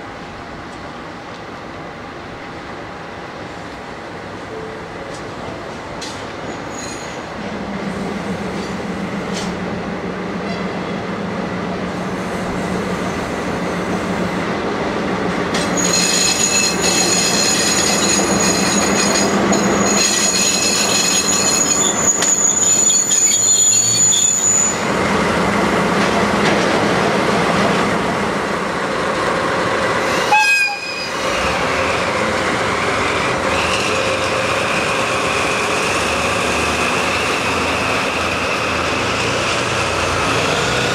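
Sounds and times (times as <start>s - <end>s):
wheel and brake squeal: 6.5s - 7.3s, 15.7s - 24.9s, 30.2s - 31.6s.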